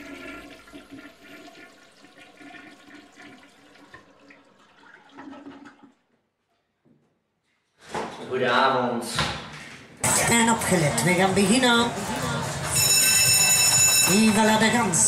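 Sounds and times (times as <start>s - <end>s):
rushing draining water: 0.0s - 6.0s.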